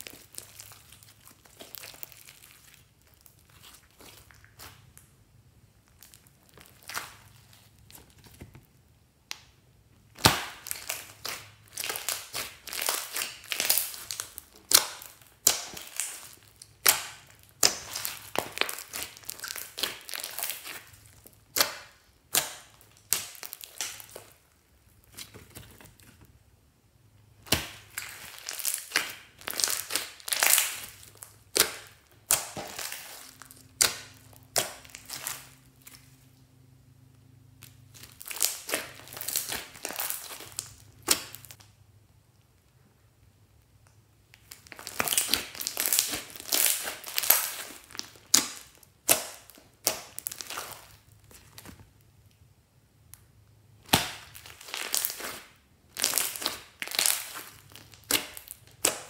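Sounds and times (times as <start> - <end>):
slime crackling and popping: 0.0 - 5.2, 5.8 - 8.6, 9.2 - 25.4, 27.3 - 36.5, 37.5 - 41.7, 43.5 - 52.4, 53.0 - 59.0.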